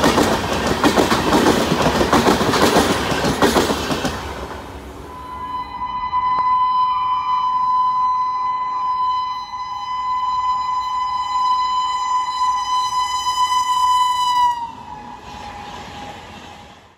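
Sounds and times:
train horn blast: 5.0 - 16.2.

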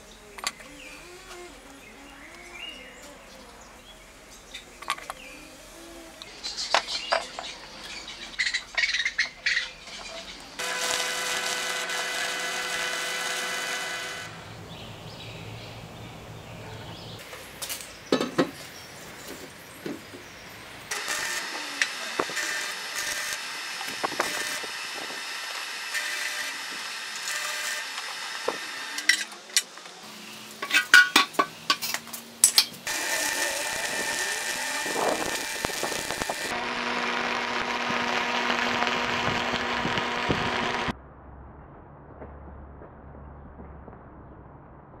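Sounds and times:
crackling arc welding: 8.4 - 14.6, 20.9 - 31.0, 31.8 - 40.9.

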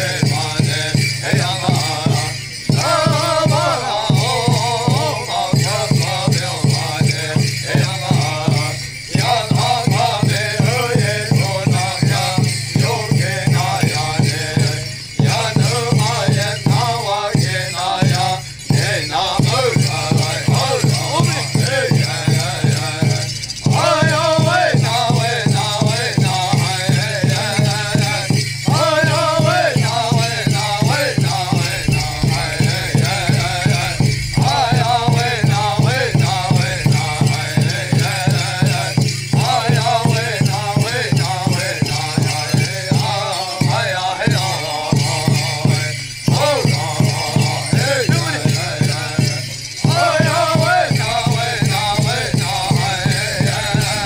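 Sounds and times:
men's chorus chanting: 0.0 - 54.0
rattles and jingles shaking: 0.0 - 54.0
steady drumbeat: 0.0 - 54.0
group of voices chanting: 7.7 - 28.1.

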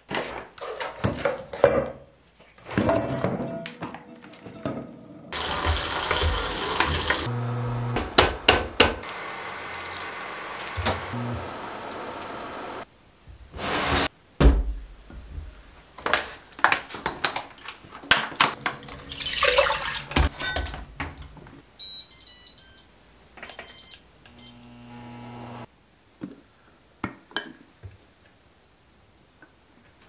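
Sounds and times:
pots clattering in a steel sink: 5.4 - 7.3, 18.1 - 21.3
running tap water: 5.4 - 7.3, 9.0 - 12.8, 18.6 - 20.4.

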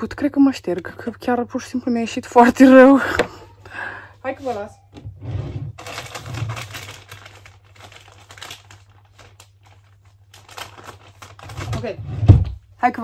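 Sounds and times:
crinkly rustling: 5.7 - 12.0.

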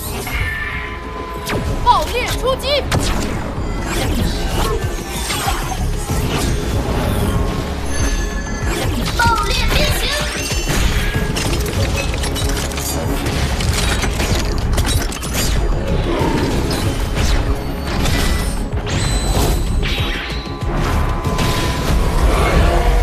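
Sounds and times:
loud action music: 0.0 - 23.0
metallic clanks and mechanical clicks: 8.9 - 15.7.

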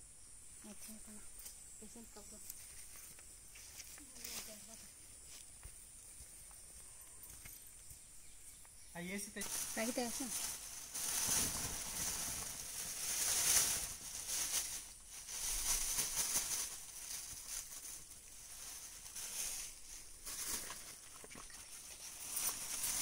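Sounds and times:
plastic bags crinkling: 9.4 - 21.0.

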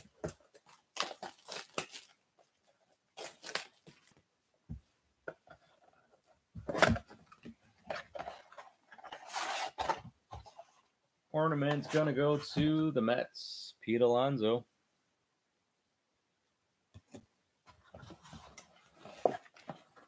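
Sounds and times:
cardboard and wrapper rustling: 0.0 - 4.2, 6.6 - 10.8, 17.8 - 20.0
plastic shrink wrap crinkling: 0.0 - 4.2.

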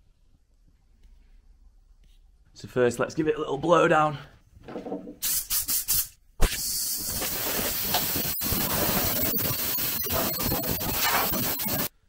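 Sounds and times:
compressed air blow gun hissing: 5.2 - 11.9.

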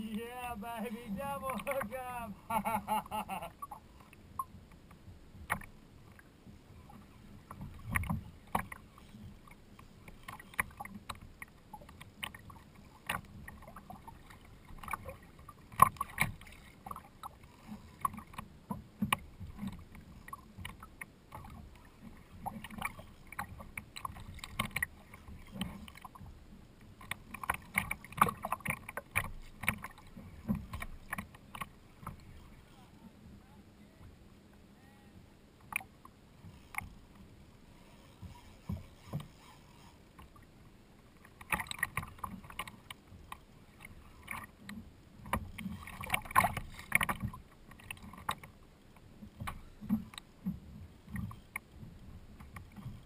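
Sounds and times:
water slapping kayak hull: 0.0 - 53.0
knocks and clicks from boat: 0.8 - 33.4, 35.6 - 37.3, 38.1 - 40.5, 41.1 - 53.0.

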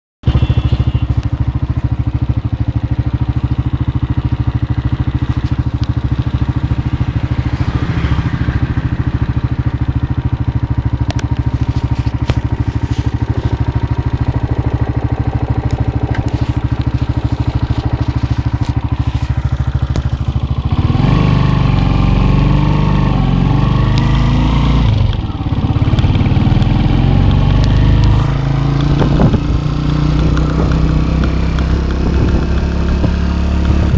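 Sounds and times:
engine running steadily: 0.3 - 33.9.

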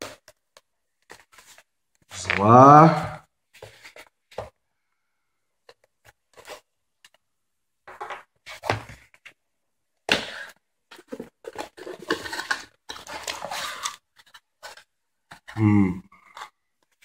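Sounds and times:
cardboard scraping and rustling: 10.9 - 15.5.

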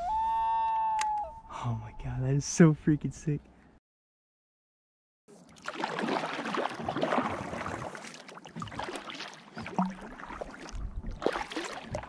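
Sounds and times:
paddle splashing in water: 5.3 - 12.0
water dripping: 9.6 - 12.0.

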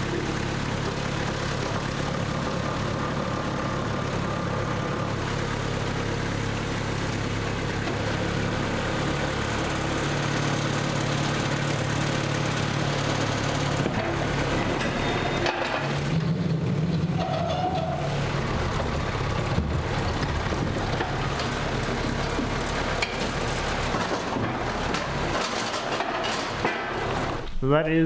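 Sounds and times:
truck engine idling: 0.0 - 27.8
heavy machinery knocks and rattles: 10.2 - 27.4.

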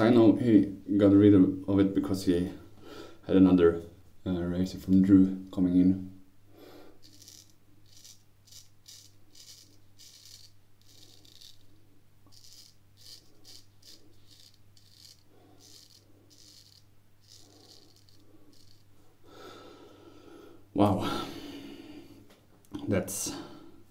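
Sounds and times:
razor scraping stubble: 7.0 - 19.2.

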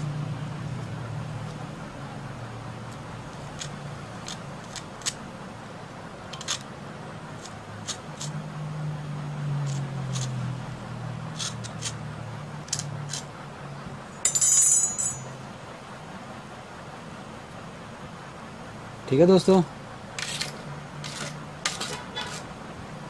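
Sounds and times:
blade scraping rubber: 3.3 - 5.2, 6.3 - 6.7, 7.3 - 8.4, 9.6 - 10.5, 11.3 - 12.0, 12.7 - 13.3, 20.2 - 22.6.

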